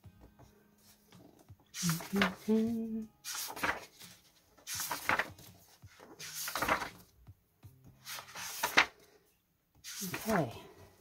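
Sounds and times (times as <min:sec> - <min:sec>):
paper book pages turning: 0:00.8 - 0:07.2, 0:08.0 - 0:09.2, 0:09.8 - 0:10.6.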